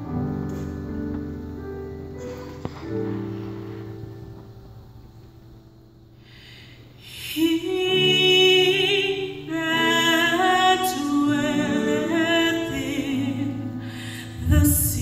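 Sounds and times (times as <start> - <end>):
women's gospel choir singing: 7.4 - 15.0.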